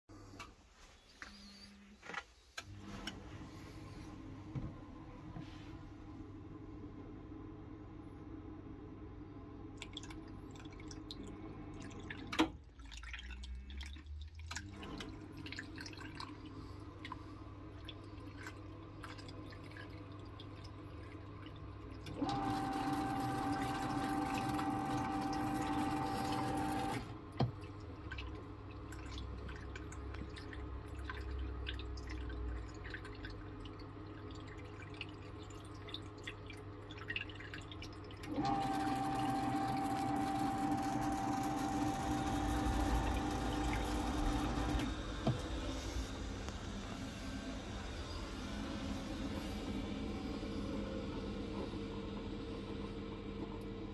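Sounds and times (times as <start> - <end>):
water dripping and trickling: 9.8 - 22.2, 27.6 - 38.3
pump whining: 22.0 - 27.6, 38.2 - 53.7.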